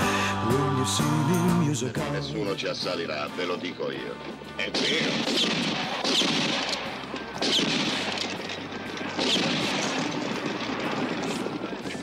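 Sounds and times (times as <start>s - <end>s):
gunshots with falling whine: 4.8s - 8.5s, 9.1s - 11.5s.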